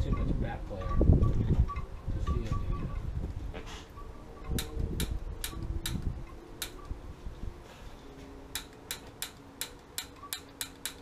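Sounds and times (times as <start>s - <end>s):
piezo igniter clicking: 4.4s - 6.9s, 8.5s - 11.0s.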